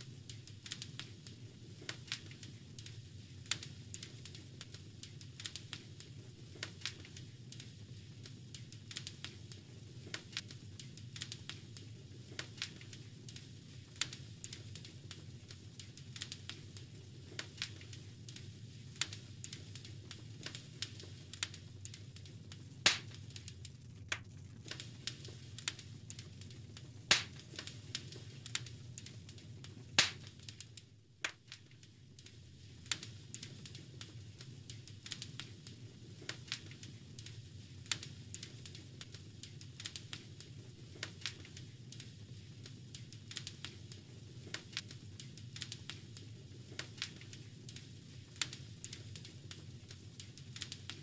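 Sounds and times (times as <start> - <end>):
fire crackling and popping: 0.0 - 51.0
low rumble of flames: 0.0 - 51.0.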